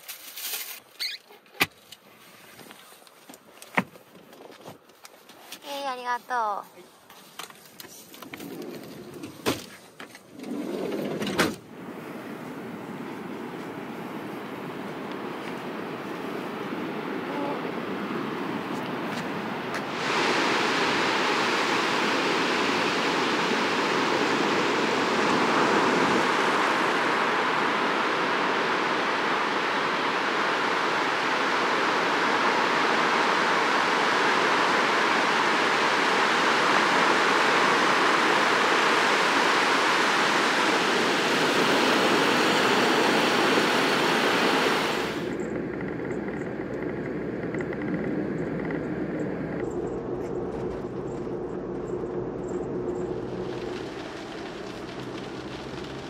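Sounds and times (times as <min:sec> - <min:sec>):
ocean surf rushing: 0:10.3 - 0:50.2, 0:50.8 - 0:56.0
low rumble: 0:44.9 - 0:56.0.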